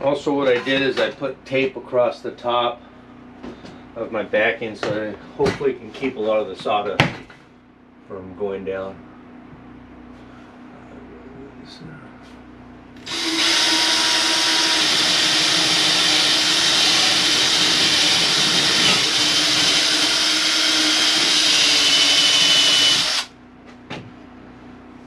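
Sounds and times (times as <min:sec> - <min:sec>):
cordless drill boring through wall: 0:13.0 - 0:23.3.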